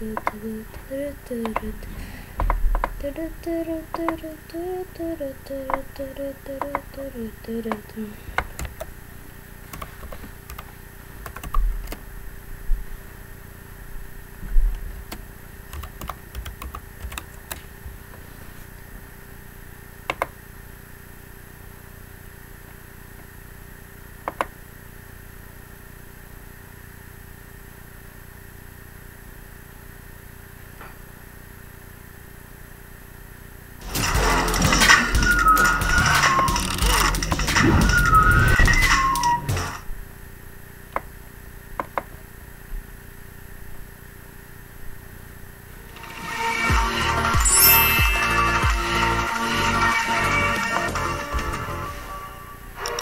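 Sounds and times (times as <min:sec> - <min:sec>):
keyboard and mouse clicks: 0:00.0 - 0:00.4, 0:01.4 - 0:01.7, 0:02.4 - 0:03.0, 0:03.9 - 0:04.3, 0:05.6 - 0:05.8, 0:06.6 - 0:06.9, 0:08.4 - 0:08.9, 0:09.7 - 0:12.0, 0:14.8 - 0:17.7, 0:20.1 - 0:20.4, 0:24.2 - 0:24.6, 0:41.8 - 0:42.1
faint hum: 0:00.0 - 0:53.0
loud noisy sound: 0:33.8 - 0:39.8.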